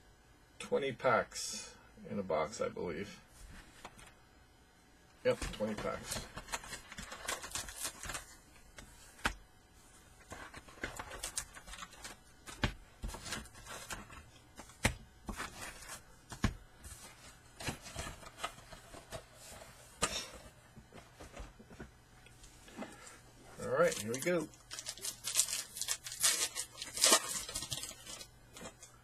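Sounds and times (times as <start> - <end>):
foil wrappers rustling: 5.5 - 8.4, 10.2 - 14.2, 22.9 - 29.0.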